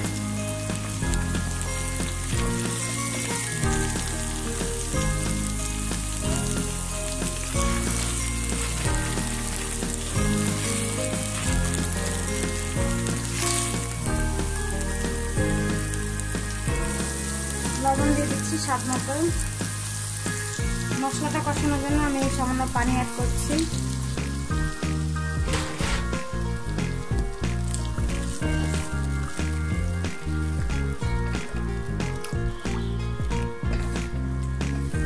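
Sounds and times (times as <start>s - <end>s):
background music: 0.0s - 35.0s
onions sizzling in hot oil: 0.0s - 35.0s.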